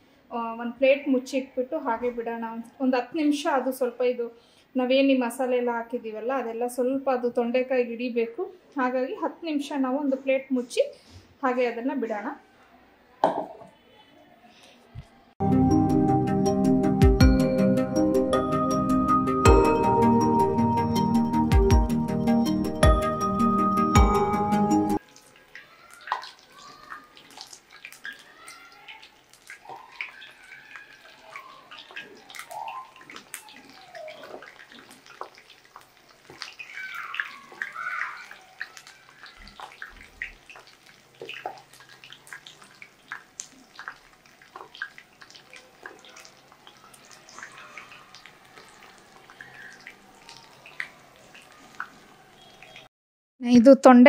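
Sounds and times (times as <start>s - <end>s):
food deep-frying in hot oil: 25.0s - 52.9s
small crackling pops: 25.0s - 52.9s.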